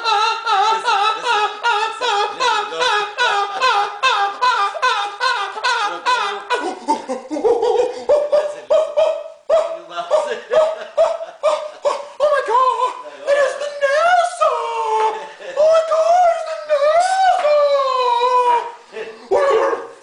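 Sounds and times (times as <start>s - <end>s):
man laughing: 0.0s - 19.2s
man wailing yells: 11.5s - 18.8s.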